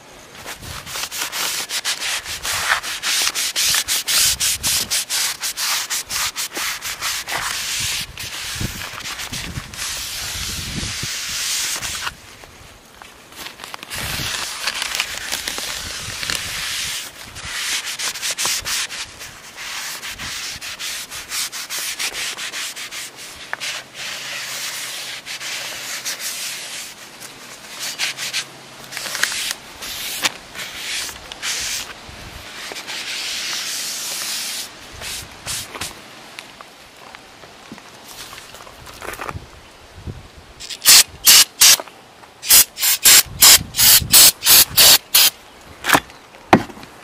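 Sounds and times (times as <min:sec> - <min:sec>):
sharp crackles: 0:13.0 - 0:17.1.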